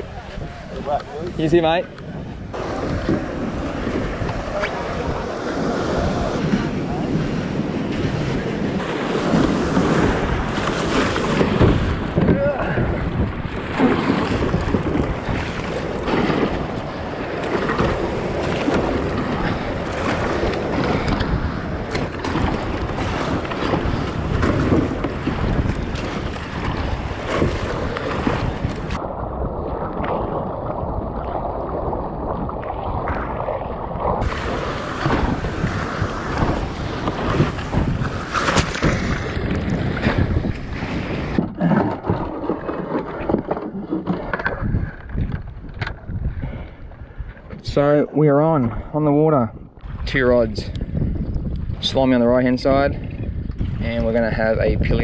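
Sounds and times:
paddle splashing water: 0.0 - 47.7, 53.0 - 54.0
choppy sea rushing: 0.0 - 55.0
water splashing against hull: 0.0 - 55.0
wind buffeting microphone: 0.0 - 55.0.

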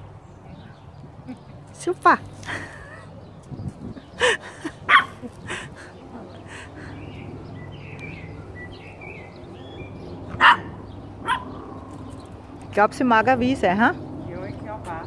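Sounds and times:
small dogs yapping: 4.6 - 6.7, 10.2 - 12.3.

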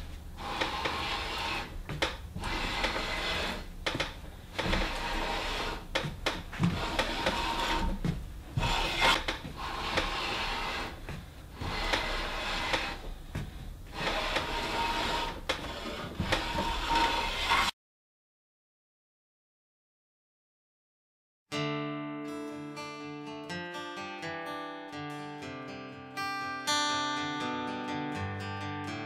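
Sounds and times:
hand plane shaving wood: 0.4 - 3.8, 4.5 - 13.1, 13.9 - 17.7.

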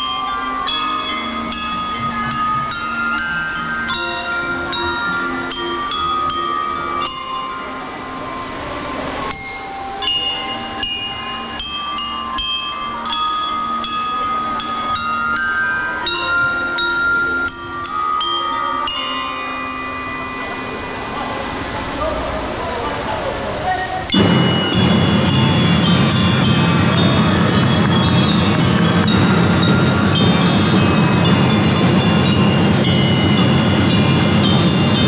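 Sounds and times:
bell lyre ringing melody: 0.0 - 21.7, 24.1 - 35.0
drum and lyre corps playing: 24.1 - 35.0.

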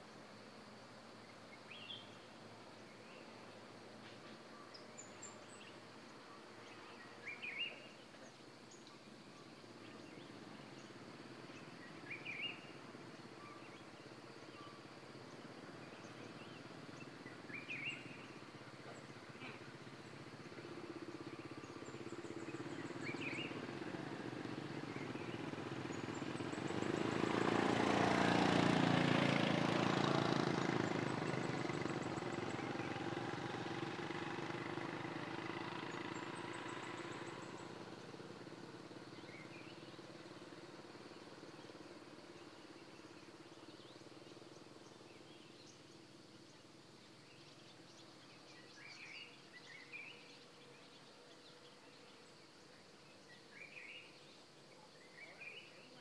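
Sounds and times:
bird chirping: 1.2 - 2.3, 4.2 - 56.0
motorbike engines passing: 5.0 - 54.4.

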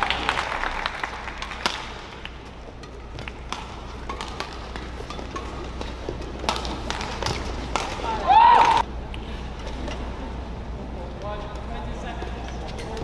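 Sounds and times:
indoor hall hum and murmur: 0.0 - 13.0
racket striking shuttlecock: 1.4 - 8.8.

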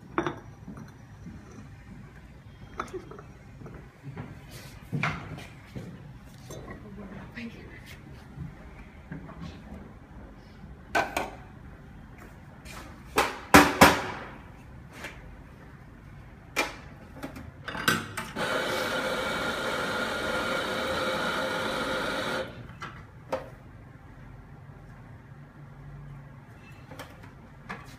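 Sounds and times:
espresso grinder whirring: 18.3 - 22.6.

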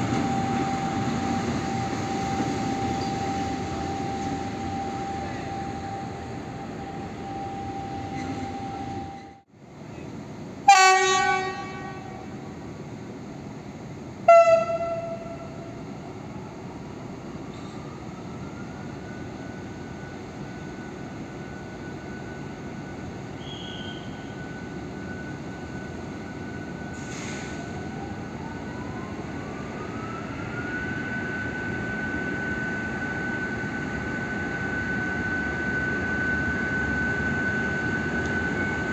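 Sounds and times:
locomotive horn blasts: 10.7 - 12.4, 14.3 - 15.8.

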